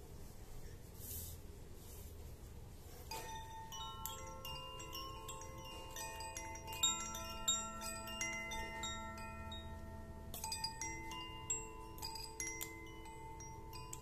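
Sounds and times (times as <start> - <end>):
bamboo wind chime notes: 3.1 - 14.0.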